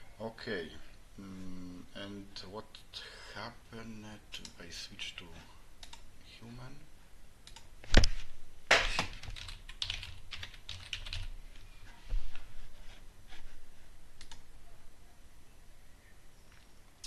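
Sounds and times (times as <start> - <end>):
computer keyboard typing: 9.0 - 11.3.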